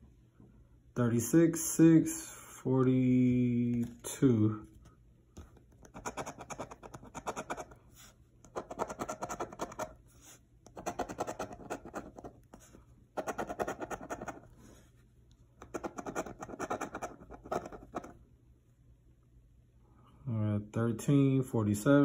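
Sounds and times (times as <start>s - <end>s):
coin scraping scratch card: 5.8s - 7.8s, 8.5s - 10.0s, 10.7s - 12.5s, 13.2s - 14.6s, 15.6s - 18.2s.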